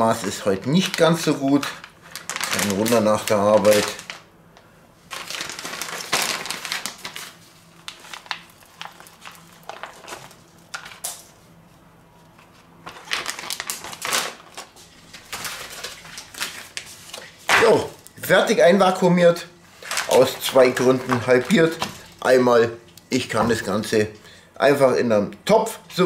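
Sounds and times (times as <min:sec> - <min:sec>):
plastic bags crinkling: 0:00.0 - 0:04.3, 0:05.1 - 0:11.4, 0:12.8 - 0:18.0, 0:19.7 - 0:23.0.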